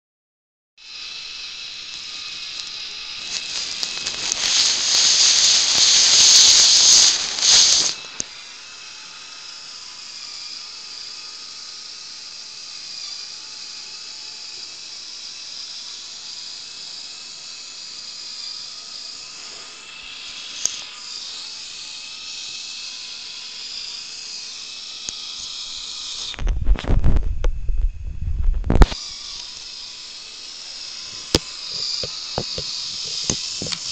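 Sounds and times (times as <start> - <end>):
small electric motor whining: 0.8 - 33.9
hissing scraping noise: 2.0 - 8.2, 31.1 - 33.9
heavy low thumps and rumble: 26.4 - 28.9.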